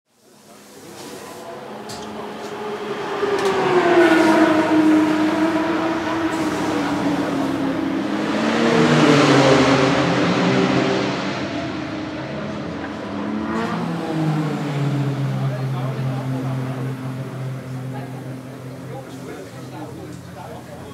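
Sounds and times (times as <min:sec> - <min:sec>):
racing engine revving: 0:00.9 - 0:20.9.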